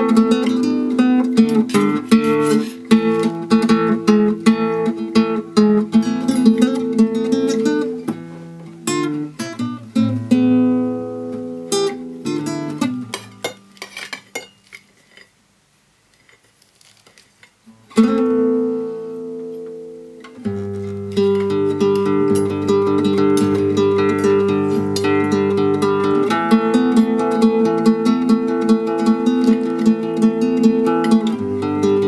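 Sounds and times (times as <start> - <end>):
acoustic guitar chords: 0.0 - 13.7, 17.7 - 32.0.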